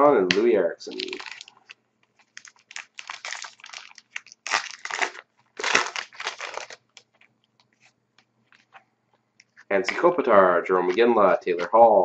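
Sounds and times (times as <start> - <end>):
wrapper tearing and crinkling: 0.9 - 7.3.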